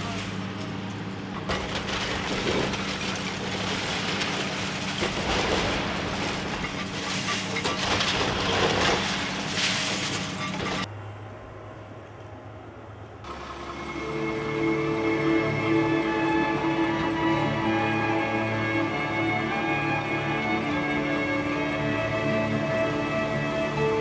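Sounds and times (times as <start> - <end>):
excavator diesel engine running: 0.0 - 24.0
crunching and falling brickwork: 1.3 - 10.9
music: 13.6 - 24.0.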